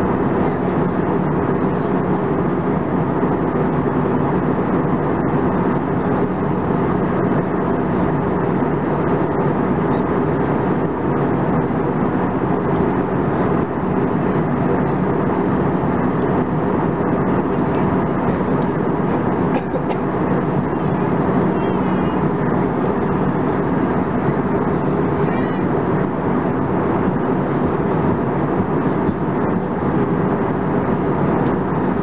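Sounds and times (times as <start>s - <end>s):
air rushing in aircraft cabin: 0.0s - 32.0s
jet engines humming: 0.0s - 32.0s.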